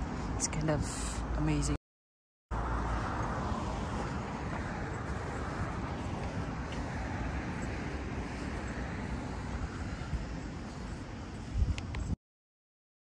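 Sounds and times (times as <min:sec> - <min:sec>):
rush of noise: 0:02.5 - 0:12.1.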